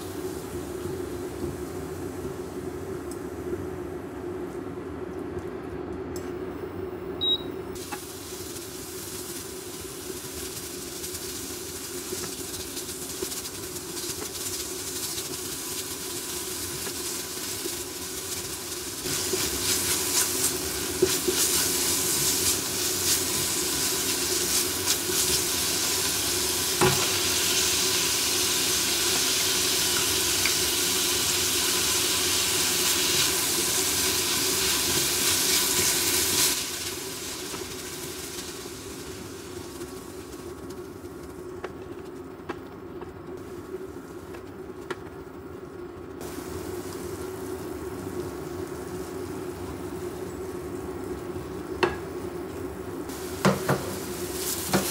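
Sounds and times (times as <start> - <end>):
meat sizzling in a frying pan: 7.8 - 40.8, 46.2 - 50.8, 53.1 - 54.9
spatula scraping and tapping a pan: 54.6 - 54.9.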